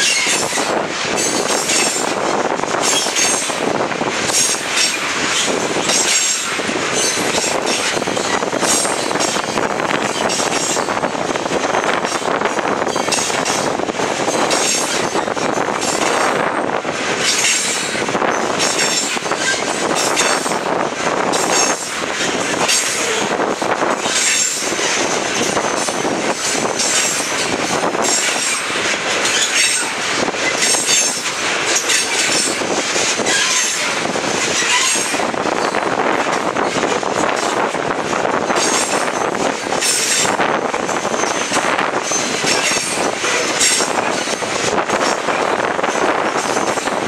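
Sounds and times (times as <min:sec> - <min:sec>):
train wheels clattering on rails: 0:00.0 - 0:47.0
high-pitched wheel squeal: 0:33.2 - 0:33.9, 0:34.6 - 0:35.2.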